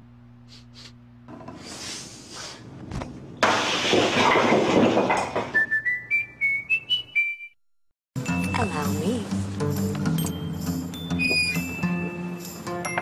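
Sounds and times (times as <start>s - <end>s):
concrete blocks crashing and crumbling: 3.4s - 5.6s
whistled jingle rising in steps: 5.6s - 7.6s, 10.2s - 13.0s.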